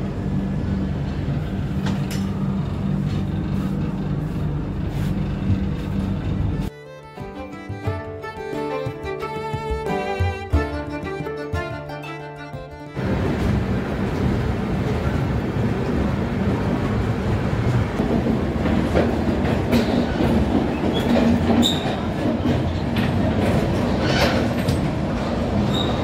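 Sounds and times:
train wheels rumbling on track: 0:00.0 - 0:06.7, 0:13.0 - 0:26.0
train clicks and rattles: 0:13.0 - 0:26.0.

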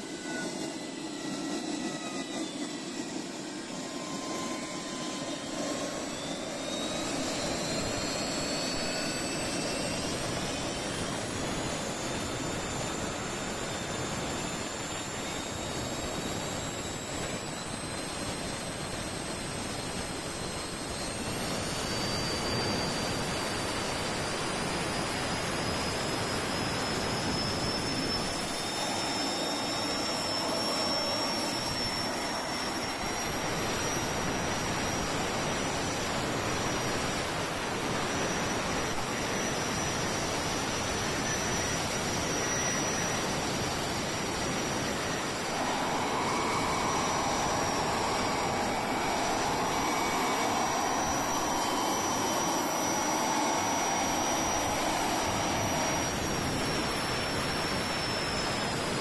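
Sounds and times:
gas turbine high whine: 0:00.0 - 0:59.0.

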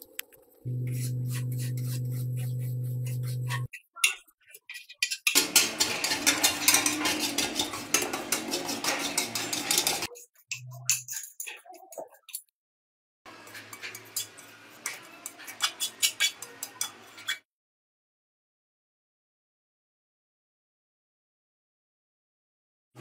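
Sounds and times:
faint scratches: 0:00.7 - 0:03.7
low hum: 0:00.7 - 0:03.7
metal scraper scraping paint: 0:00.7 - 0:03.7, 0:04.5 - 0:11.8, 0:13.3 - 0:17.4.

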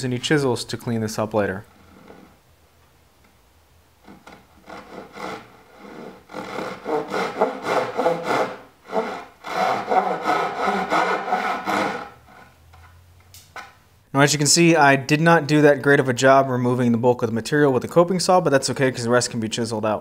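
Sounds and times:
hand saw cutting wood: 0:04.0 - 0:12.6.

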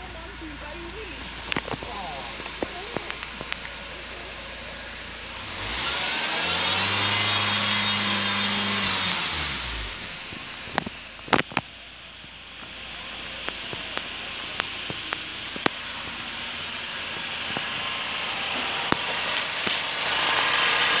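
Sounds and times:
car engine idling: 0:00.0 - 0:21.0
sharp clicks: 0:00.9 - 0:05.0.

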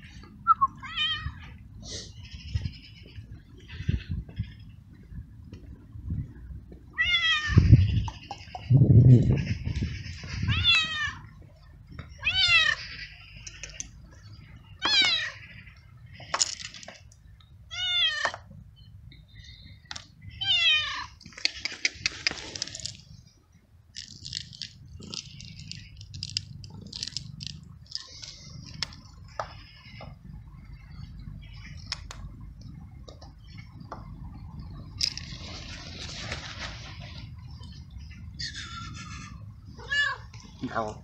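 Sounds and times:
cat meowing loudly: 0:00.8 - 0:01.6, 0:07.0 - 0:07.8, 0:10.4 - 0:11.3, 0:12.2 - 0:12.9, 0:14.8 - 0:15.4, 0:17.7 - 0:18.4, 0:20.4 - 0:21.2, 0:39.8 - 0:40.3
dry kibble rattling onto paving: 0:16.2 - 0:17.1, 0:21.2 - 0:23.2, 0:23.9 - 0:29.5, 0:35.0 - 0:36.2
cat crunching kibble: 0:21.3 - 0:23.1, 0:23.9 - 0:29.0.

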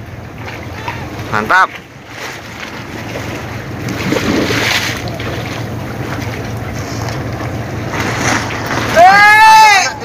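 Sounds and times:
sea waves washing: 0:00.0 - 0:10.0
wind on microphone: 0:03.9 - 0:05.2.

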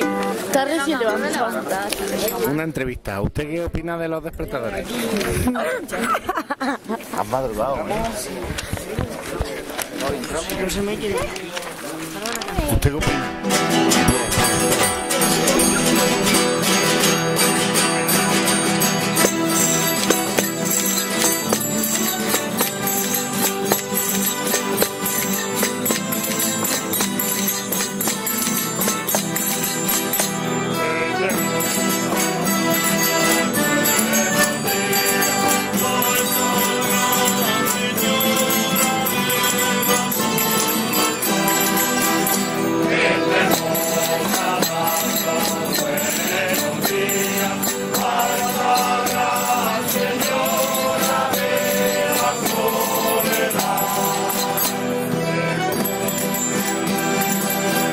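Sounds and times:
accordion: 0:00.0 - 0:02.6, 0:06.8 - 0:57.9
strummed guitars and lutes: 0:00.0 - 0:06.3, 0:07.0 - 0:57.9
jingling percussion: 0:01.3 - 0:02.6, 0:13.2 - 0:57.9
group of voices singing: 0:13.2 - 0:57.9.

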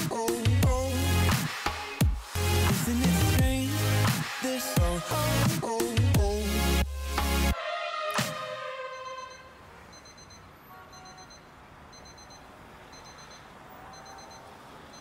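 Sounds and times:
music: 0:00.0 - 0:09.5.

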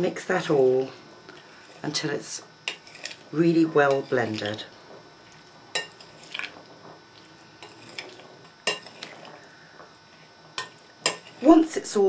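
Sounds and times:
spoon stirring food in bowl: 0:02.6 - 0:09.5, 0:10.1 - 0:11.6.

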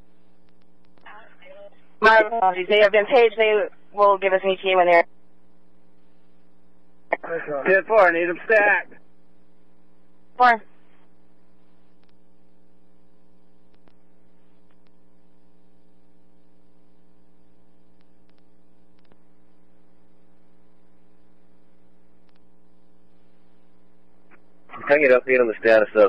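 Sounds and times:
electrical hum: 0:00.0 - 0:26.0
faint clicks: 0:00.4 - 0:01.1, 0:11.9 - 0:12.2, 0:13.6 - 0:15.1, 0:17.8 - 0:19.6, 0:22.2 - 0:22.5.

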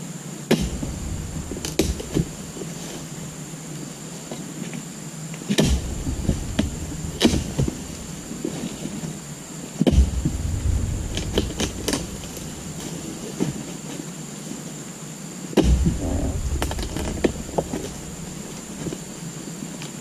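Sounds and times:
low rumble: 0:00.6 - 0:03.5, 0:05.7 - 0:08.6, 0:09.9 - 0:13.4, 0:15.7 - 0:19.1
stalk and fronds cracking: 0:10.0 - 0:13.4, 0:15.6 - 0:19.1.

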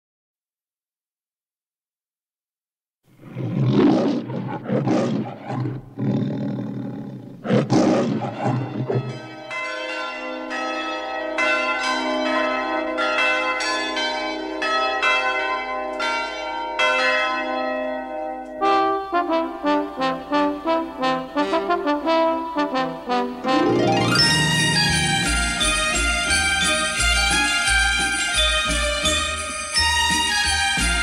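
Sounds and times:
lion roaring: 0:03.2 - 0:09.1
slow melody on bells: 0:09.2 - 0:18.7, 0:23.5 - 0:31.0.

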